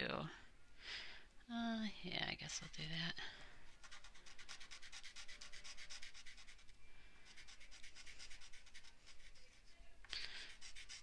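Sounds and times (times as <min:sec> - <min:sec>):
chalk scratching on paper: 0:03.7 - 0:11.0.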